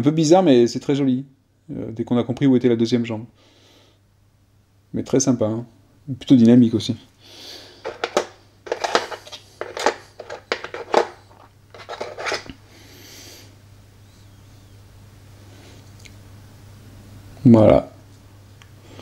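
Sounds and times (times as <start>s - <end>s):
steady low hum: 0.0s - 19.0s
packaging clicks and rustles: 7.8s - 12.6s.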